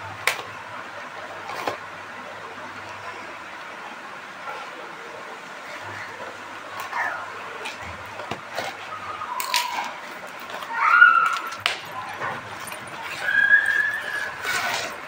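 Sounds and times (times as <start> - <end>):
high squeaks: 10.6 - 15.0.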